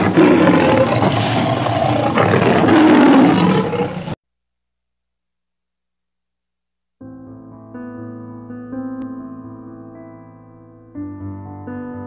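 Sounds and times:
loud rough roar: 0.0 - 4.2.

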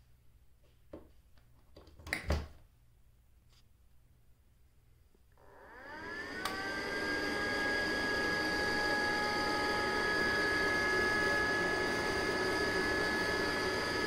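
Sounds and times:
lawn mower motor whirring: 5.4 - 14.0.

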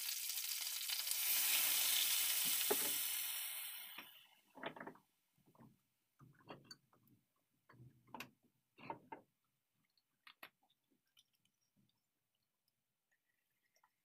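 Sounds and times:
faint clicks and taps: 4.6 - 12.0.

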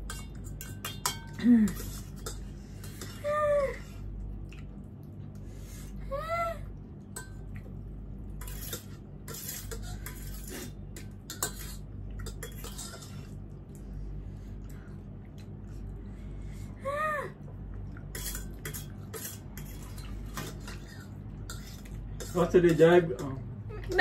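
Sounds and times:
cutlery clinking against bowls: 0.0 - 3.2, 7.1 - 7.5, 8.4 - 13.4, 18.0 - 24.0.

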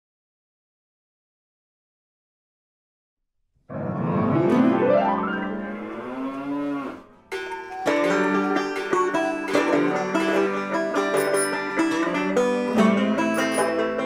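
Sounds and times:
plucked-string tune: 7.2 - 14.0.

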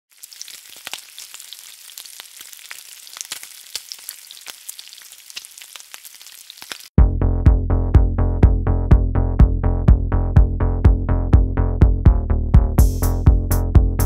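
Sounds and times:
food sizzling in hot oil: 0.1 - 7.0.

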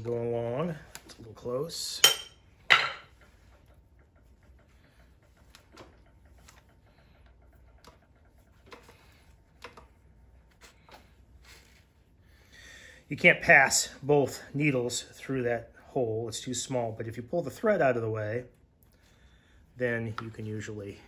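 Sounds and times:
faint clicks and ticks of tools: 3.2 - 10.2.

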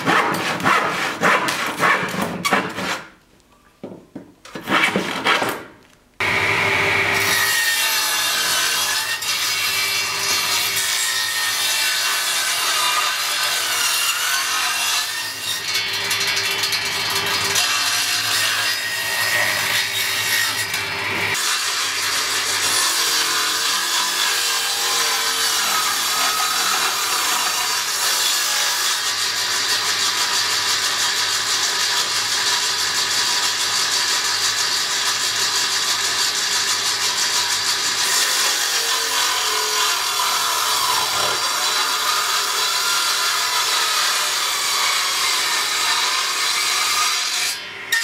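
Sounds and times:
circular saw cutting wood: 6.2 - 48.0.

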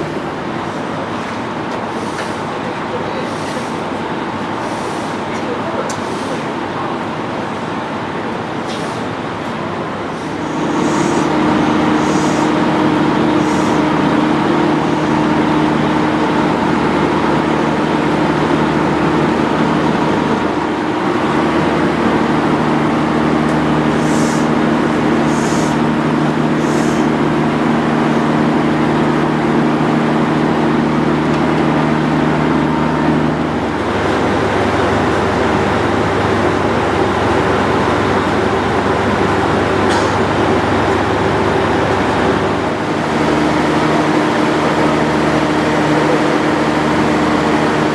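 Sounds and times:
diesel railcar engine idling: 0.0 - 47.9
short high hisses: 10.1 - 11.3, 12.0 - 12.6.

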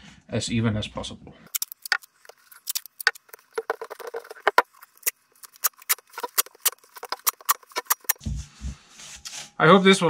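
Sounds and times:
duct tape crackling: 1.5 - 8.3.

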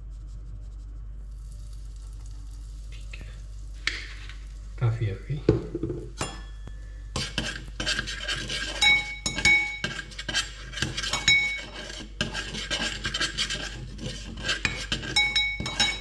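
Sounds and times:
spoon clinking on pan: 6.2 - 6.7, 8.8 - 10.0, 11.0 - 11.7, 14.7 - 16.0
metal spoon scraping saucepan: 7.2 - 16.0.

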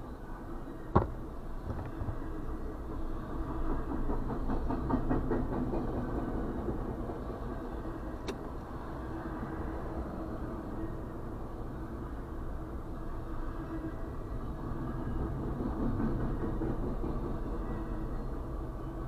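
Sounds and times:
freight train rumble: 0.0 - 19.0
sharp knock: 1.0 - 1.2.

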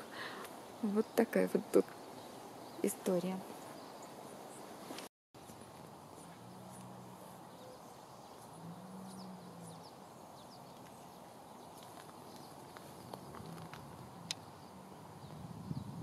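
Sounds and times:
faint bird chirps: 5.4 - 13.6.

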